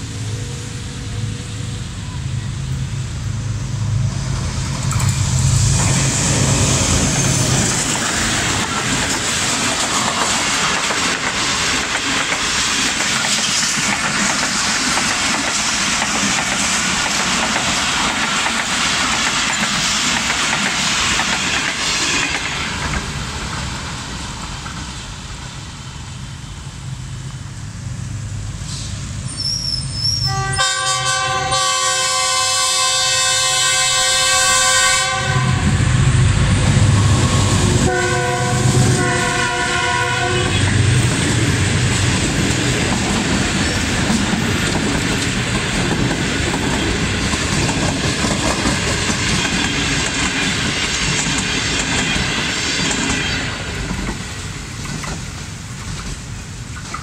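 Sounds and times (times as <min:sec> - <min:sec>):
diesel locomotive engine: 0:00.0 - 0:57.0
coaches clicking over rail joints: 0:04.3 - 0:23.7, 0:40.5 - 0:57.0
train horn: 0:30.2 - 0:35.8, 0:37.0 - 0:40.8.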